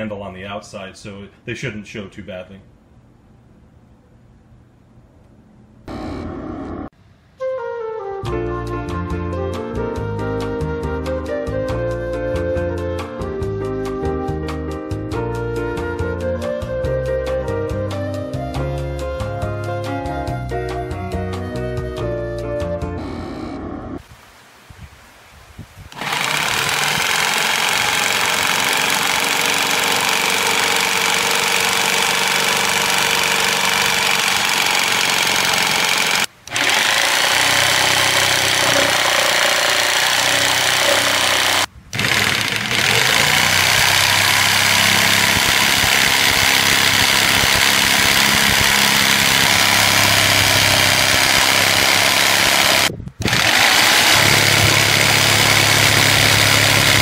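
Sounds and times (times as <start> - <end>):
electric jigsaw cutting plastic board: 25.9 - 57.0.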